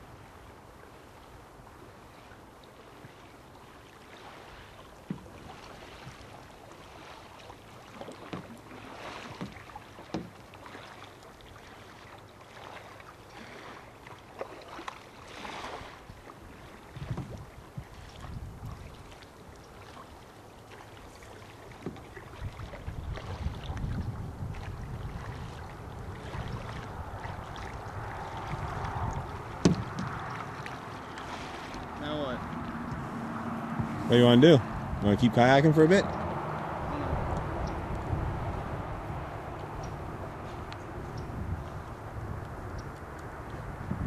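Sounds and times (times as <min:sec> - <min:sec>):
paddle strokes splashing: 0:00.0 - 0:44.0
wind rumble on microphone: 0:15.4 - 0:19.4, 0:21.8 - 0:44.0.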